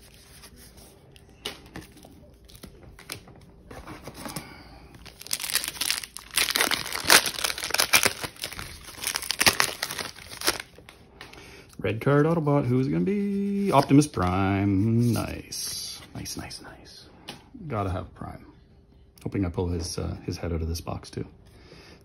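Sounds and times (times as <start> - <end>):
foil pack crinkling and tearing: 4.2 - 10.9.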